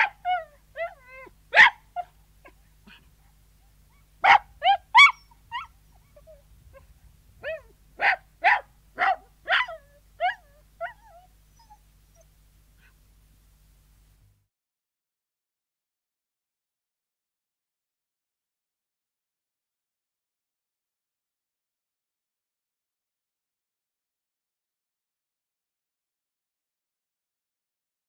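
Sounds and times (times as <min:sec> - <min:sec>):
dog barking and yelping: 0:00.0 - 0:03.1, 0:04.0 - 0:13.0.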